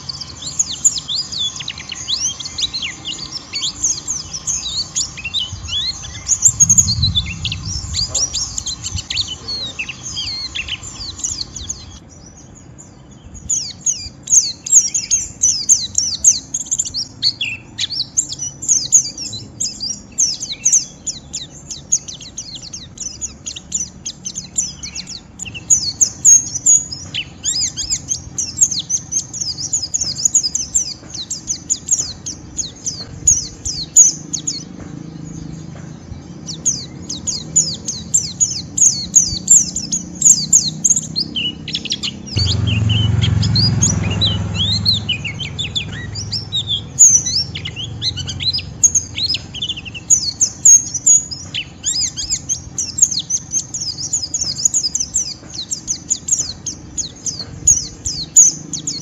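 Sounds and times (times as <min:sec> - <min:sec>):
bird twittering song: 0:00.0 - 0:59.0.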